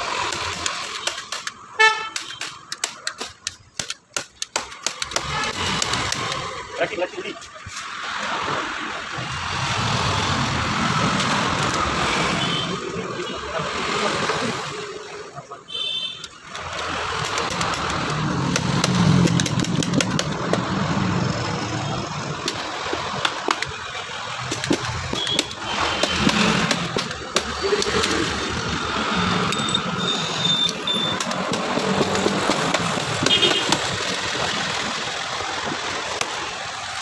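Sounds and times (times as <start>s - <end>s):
sharp clicks and knocks: 0.0s - 6.6s, 16.2s - 34.7s.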